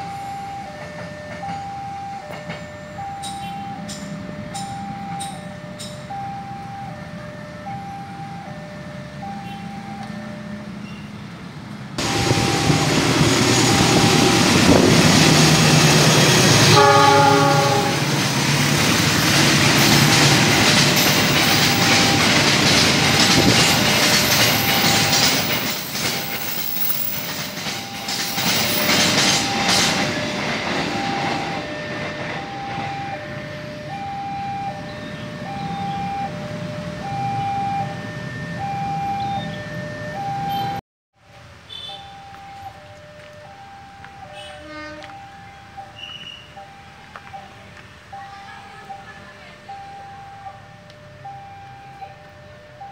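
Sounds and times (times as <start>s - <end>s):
train wheels clattering on rails: 0.5s - 6.1s, 12.0s - 33.2s
locomotive horn blast: 15.7s - 18.2s, 44.3s - 45.2s.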